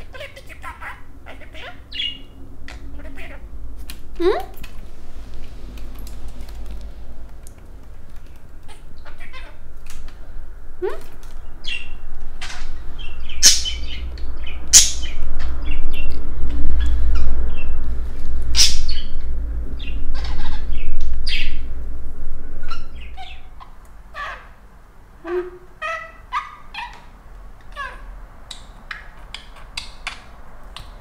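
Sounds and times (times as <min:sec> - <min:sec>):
budgerigar chirping: 0:00.0 - 0:02.4, 0:13.0 - 0:15.2, 0:25.8 - 0:27.0
low rumble: 0:01.0 - 0:23.8.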